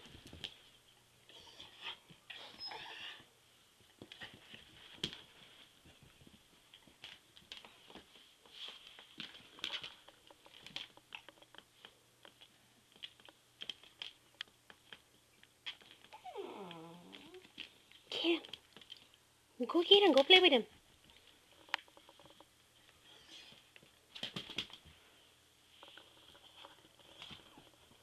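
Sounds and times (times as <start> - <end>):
dog whining: 1.3 - 3.3, 16.1 - 17.5
dogs scuffling: 3.9 - 11.6.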